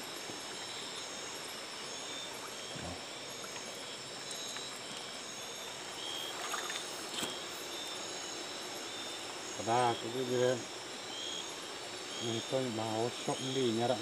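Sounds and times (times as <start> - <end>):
night insects trilling: 0.0 - 14.0.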